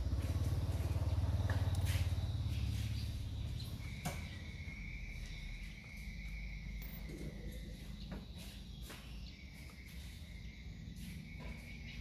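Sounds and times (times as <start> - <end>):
fast-pulsing engine rumble: 0.0 - 5.2.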